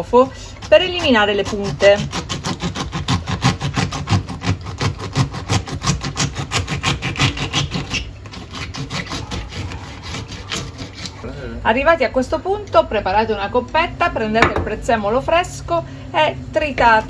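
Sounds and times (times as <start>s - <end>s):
knife cutting on wooden board: 0.6s - 11.2s.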